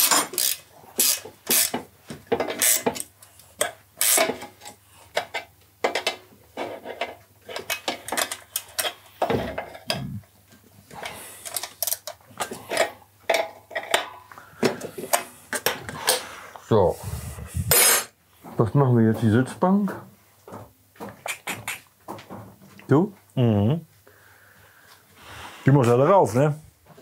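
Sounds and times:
wrenches clanking on metal: 0.0 - 10.1.

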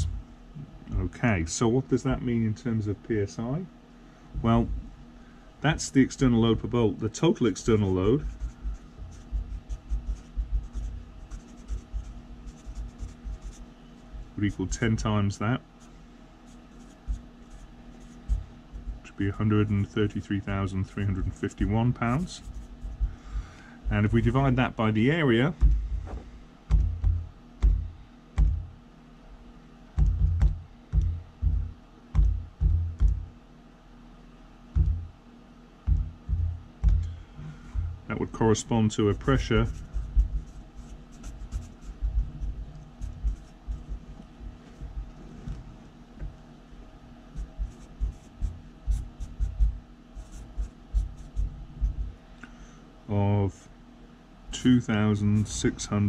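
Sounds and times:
marker scratching on paper: 7.7 - 14.8, 15.8 - 23.1, 39.0 - 44.8, 47.4 - 52.0
calculator keys tapping: 30.0 - 31.6, 32.2 - 33.3.

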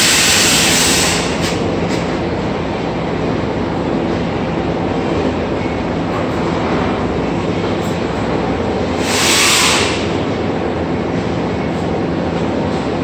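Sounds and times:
loud hiss: 0.0 - 1.6, 9.0 - 10.2.

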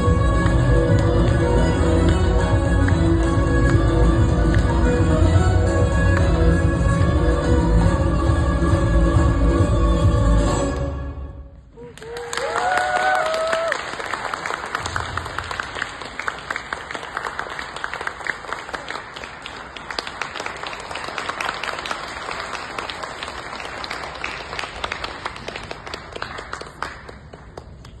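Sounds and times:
audience applauding: 11.8 - 28.0.

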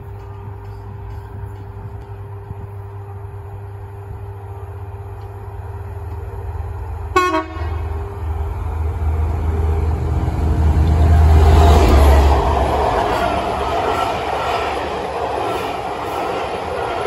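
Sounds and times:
diesel locomotive engine drone: 0.0 - 17.0
locomotive horn toot: 7.1 - 8.0.

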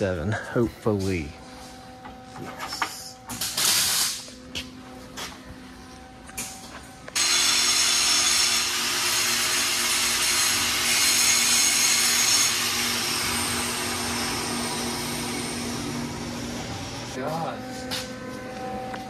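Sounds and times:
power tool motor running: 7.2 - 17.2.

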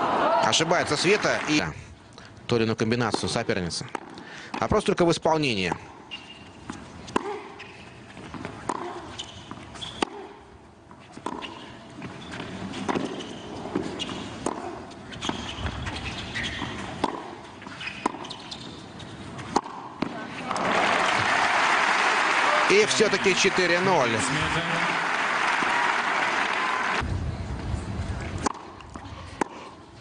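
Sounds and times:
tennis ball bouncing: 3.9 - 4.2, 5.7 - 18.6, 19.4 - 20.3, 28.3 - 29.7
tennis racket striking ball: 6.7 - 10.4, 11.2 - 11.6, 12.8 - 15.8, 16.5 - 18.4, 19.4 - 20.2, 28.4 - 28.8.

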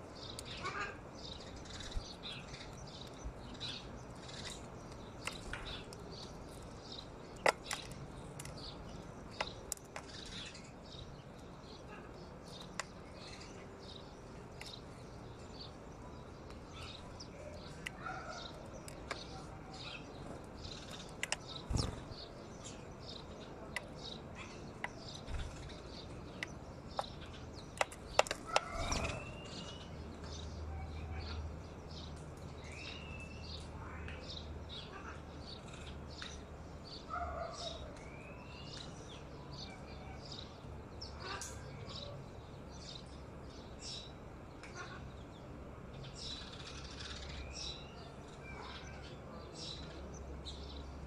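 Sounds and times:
sparrows chirping: 0.0 - 51.0
sharp clicks: 4.3 - 11.0, 23.0 - 29.3.

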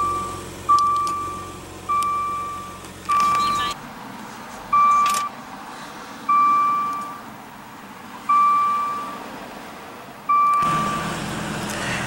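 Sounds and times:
car door warning chime: 0.0 - 3.8, 4.8 - 5.3, 6.3 - 7.2, 8.3 - 9.2, 10.3 - 11.0
car engine starting and running: 0.0 - 12.0.

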